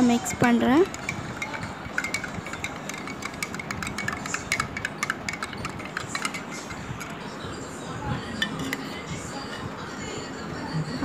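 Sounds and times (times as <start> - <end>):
spoon clinking in glass: 0.2 - 7.1, 8.4 - 8.9.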